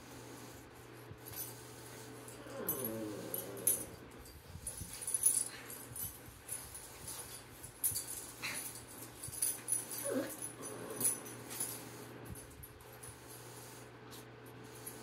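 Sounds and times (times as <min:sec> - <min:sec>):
dog whining: 0:02.4 - 0:04.0, 0:10.0 - 0:11.2.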